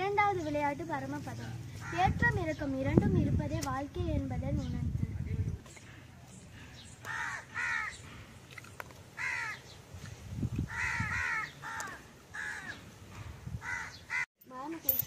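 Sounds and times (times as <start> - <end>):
crows cawing: 7.0 - 8.2, 9.2 - 9.7, 10.7 - 12.9, 13.6 - 14.3.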